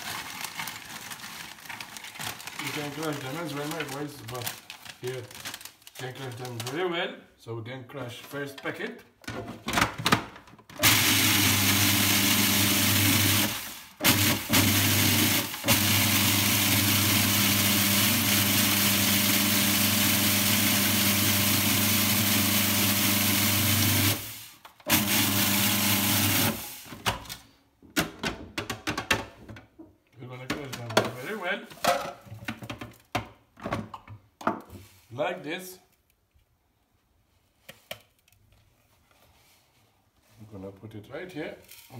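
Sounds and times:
electric chopper motor crushing chips: 10.8s - 27.0s.

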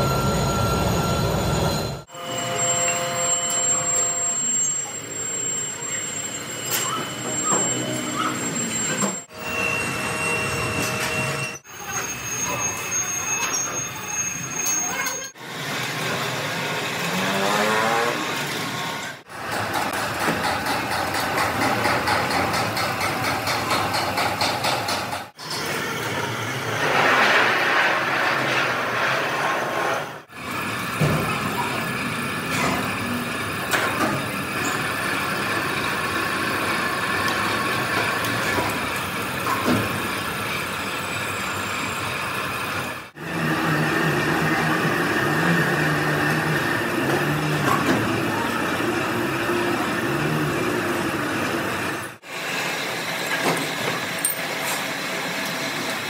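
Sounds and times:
rising machine whine: 0.0s - 14.8s
metalworking machinery running: 18.1s - 56.0s.

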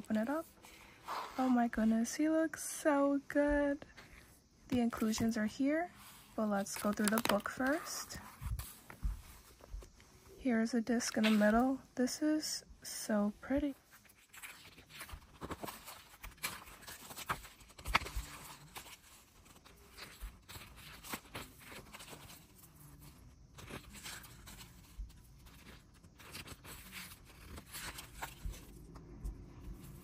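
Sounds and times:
paper pages rustling: 4.8s - 9.9s, 13.9s - 30.0s.

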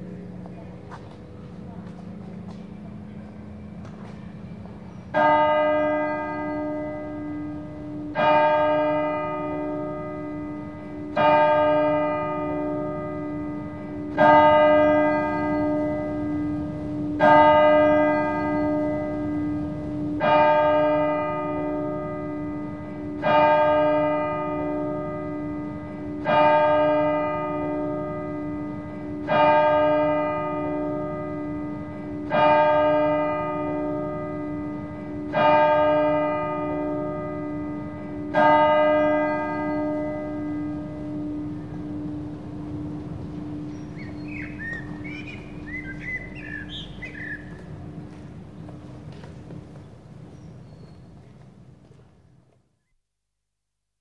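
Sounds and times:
clock bell striking: 0.0s - 48.8s.

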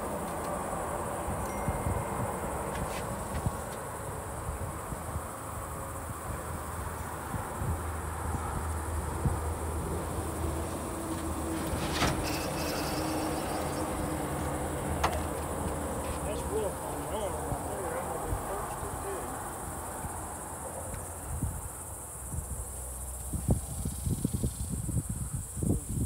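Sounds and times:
high-pitched insect drone: 12.2s - 15.4s.

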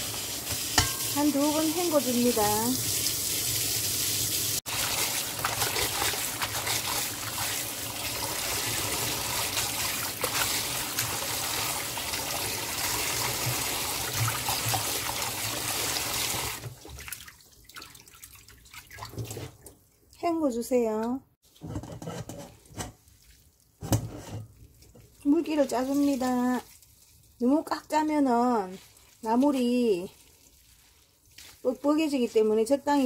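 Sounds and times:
hands moving leaves in water: 4.7s - 15.0s, 24.6s - 33.0s
tap water running into bowl: 4.7s - 16.8s.

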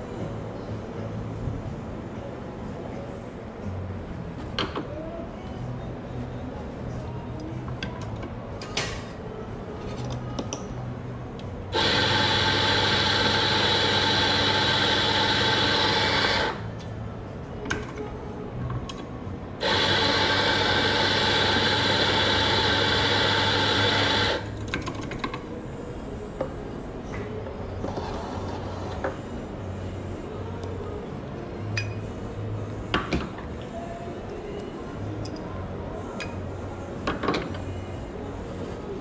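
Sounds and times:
coffee grinder whine: 11.8s - 16.6s, 19.6s - 24.5s.

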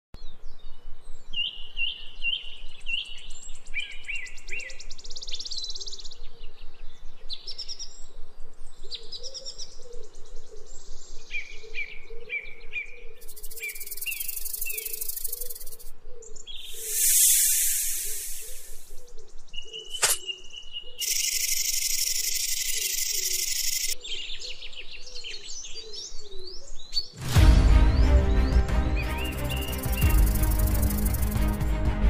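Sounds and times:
birds chirping and trilling: 0.2s - 27.2s, 27.9s - 31.6s
shrill insect buzz: 13.2s - 15.9s, 16.8s - 18.9s, 21.0s - 24.0s, 29.2s - 31.6s.

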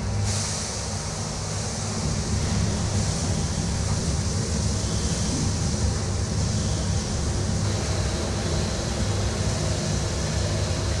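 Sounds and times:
fire hose spraying water: 0.2s - 10.8s
deep even rumble: 2.0s - 8.5s.

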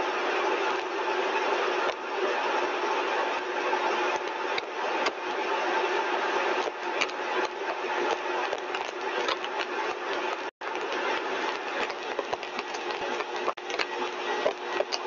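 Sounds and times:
compressor running: 0.0s - 15.0s.

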